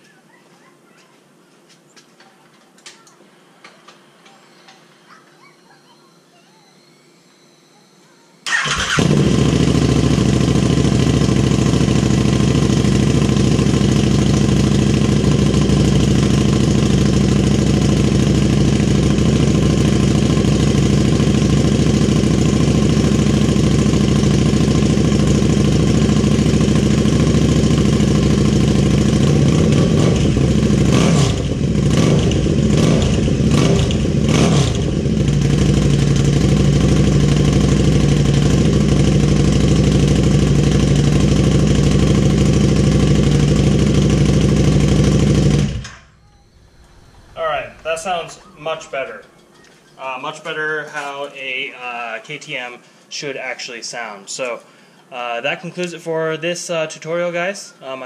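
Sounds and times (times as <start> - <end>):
motorcycle engine idling: 8.5 - 48.8
motorcycle throttle blips: 8.5 - 50.0.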